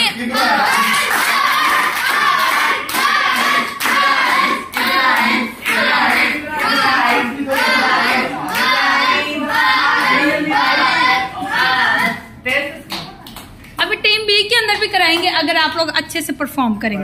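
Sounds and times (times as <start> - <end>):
hands clapping: 0.0 - 9.1, 12.8 - 13.8
children chanting rhythmically: 0.0 - 12.2.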